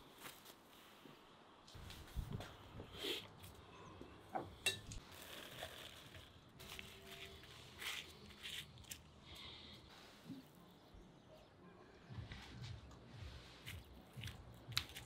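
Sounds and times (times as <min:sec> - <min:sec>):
tongs clinking on glass bowl: 0:04.6 - 0:05.0
flatbread and lettuce rustling: 0:05.0 - 0:09.2.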